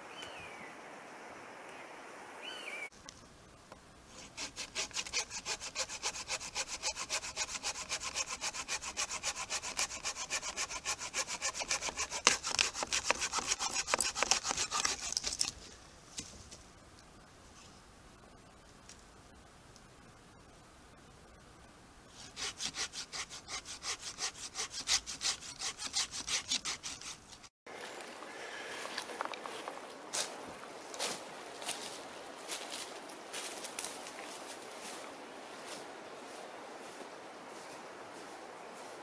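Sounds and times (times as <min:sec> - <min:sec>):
saw cutting through branch: 0:04.1 - 0:15.6, 0:22.2 - 0:27.5.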